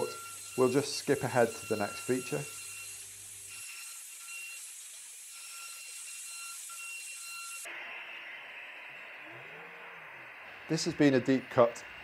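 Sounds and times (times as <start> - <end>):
thin high whine: 0.0 - 12.0.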